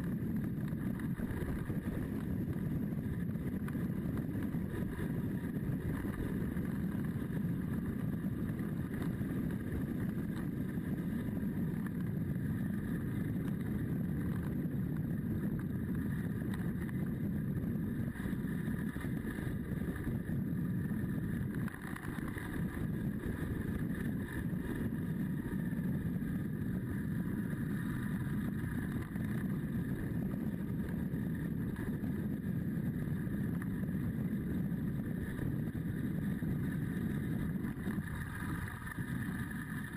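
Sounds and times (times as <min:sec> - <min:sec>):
motorcycle engine running: 0:00.0 - 0:39.9
wind rush on microphone: 0:00.0 - 0:39.9.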